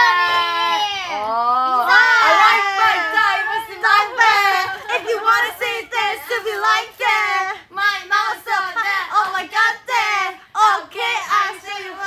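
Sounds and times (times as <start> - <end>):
women vocalising playfully: 0.0 - 12.0.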